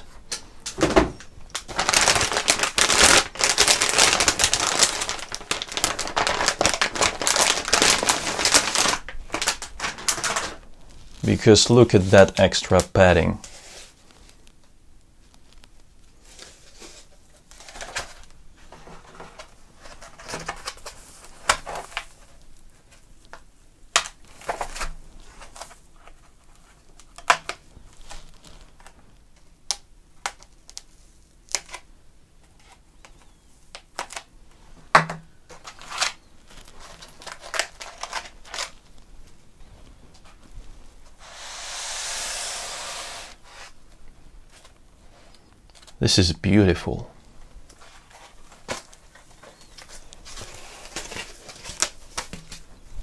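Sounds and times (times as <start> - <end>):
foam rubbing and rustling: 1.6 - 12.4, 39.6 - 43.9, 47.7 - 53.0.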